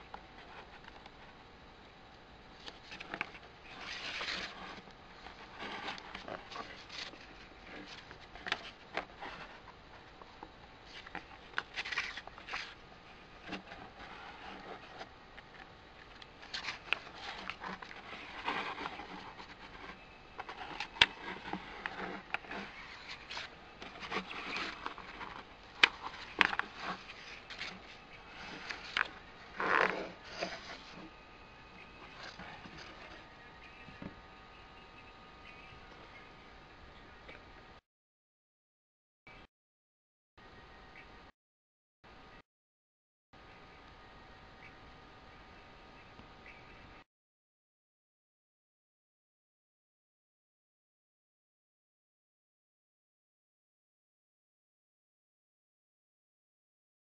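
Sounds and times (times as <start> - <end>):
book pages turning: 0.1 - 1.3, 2.6 - 31.1, 31.8 - 33.3.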